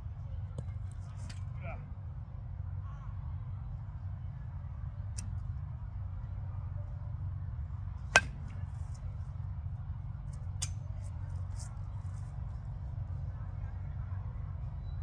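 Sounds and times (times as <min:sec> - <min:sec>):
bat cracking against baseball: 0:08.1 - 0:09.0.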